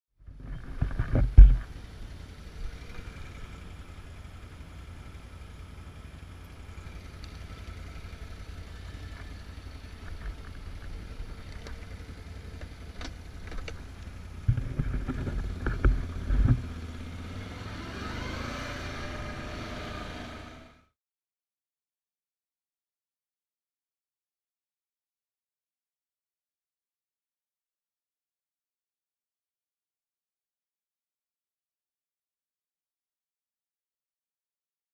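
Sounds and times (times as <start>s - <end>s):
atv engine idling and accelerating: 0.2s - 21.0s
loud knocks and thumps: 14.4s - 16.7s.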